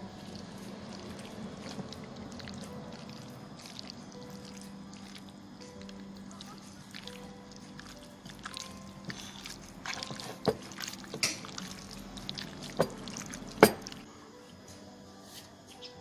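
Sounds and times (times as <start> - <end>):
hands squelching in wet paste: 0.0 - 14.0.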